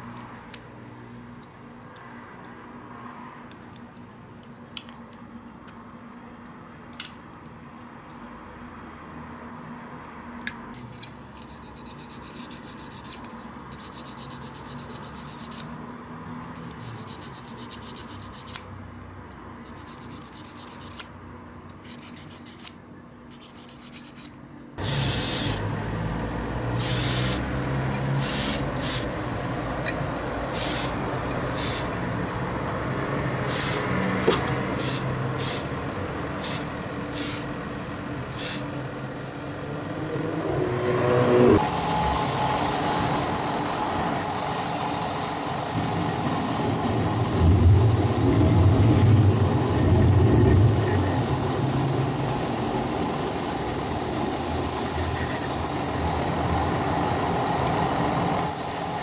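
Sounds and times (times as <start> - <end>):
airbrush hissing: 24.8 - 25.6, 26.7 - 27.4, 28.1 - 29.2, 30.5 - 32.0, 33.4 - 33.9, 34.7 - 35.7, 36.4 - 37.5, 38.3 - 38.7, 41.6 - 59.0
extractor fan noise: 24.8 - 59.0.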